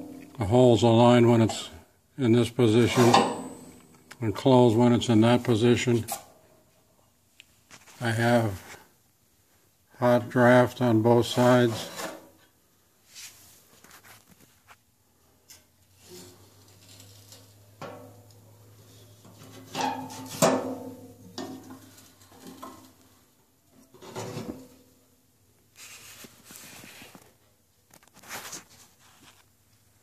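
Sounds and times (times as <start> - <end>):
low steady hum: 0.0 - 6.7
metal grate scraping and clunking: 2.7 - 3.9, 16.0 - 18.2, 19.0 - 22.9.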